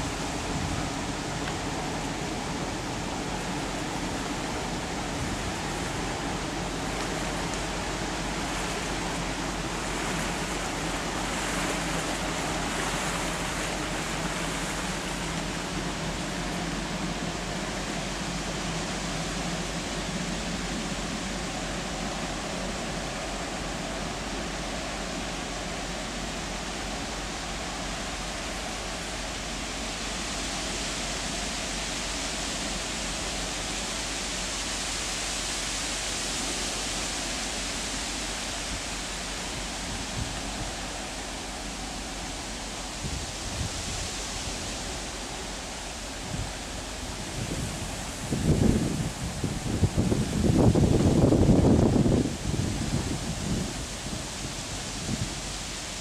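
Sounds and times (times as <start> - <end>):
faint low ship engine hum: 0.0 - 56.0
steady rushing noise: 0.0 - 56.0.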